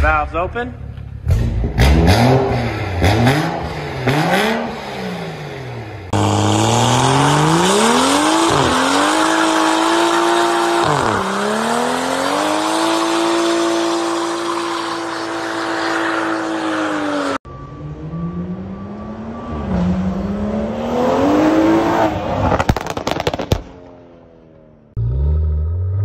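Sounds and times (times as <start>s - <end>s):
car engine revving hard: 1.4s - 17.4s.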